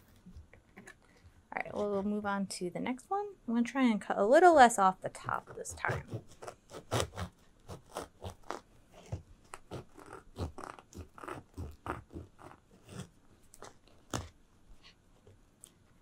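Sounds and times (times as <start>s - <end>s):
knife sawing through bread crust: 5.4s - 13.1s.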